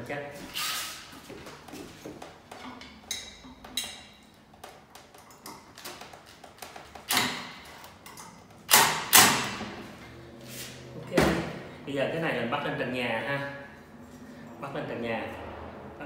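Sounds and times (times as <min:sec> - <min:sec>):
loud knocks of fan parts: 0:08.7 - 0:09.8.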